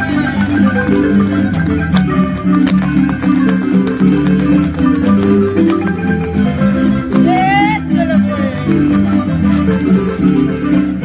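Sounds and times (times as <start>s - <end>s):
lively marimba music: 0.0s - 11.0s.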